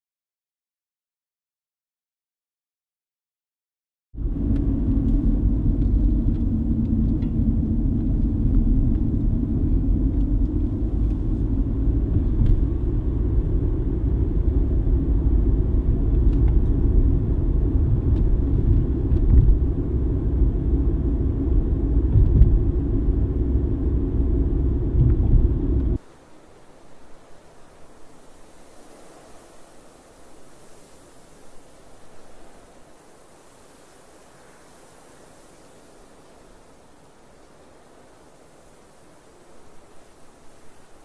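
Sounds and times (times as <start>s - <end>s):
car road and engine rumble: 4.2s - 26.2s.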